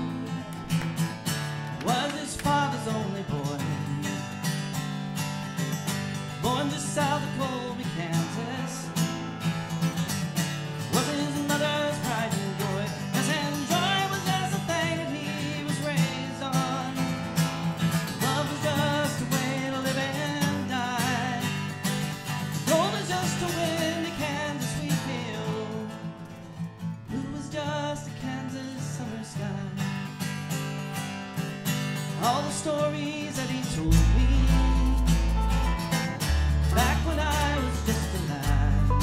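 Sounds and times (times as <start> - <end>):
man singing: 0.0 - 0.8, 1.7 - 4.6, 6.3 - 9.2, 10.8 - 17.4, 18.1 - 21.8, 22.6 - 26.2, 27.0 - 30.0, 32.1 - 39.0
acoustic guitars strumming: 0.0 - 39.0.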